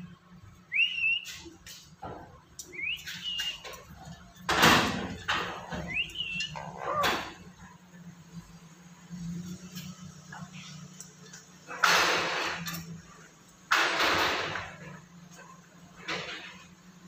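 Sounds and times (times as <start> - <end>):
bird whistling a rising note: 0.7 - 1.4, 2.7 - 3.7, 5.8 - 7.0.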